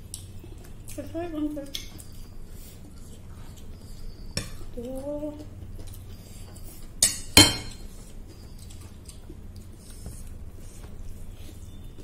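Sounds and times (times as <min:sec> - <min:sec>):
dishes clinking: 0:07.0 - 0:07.9.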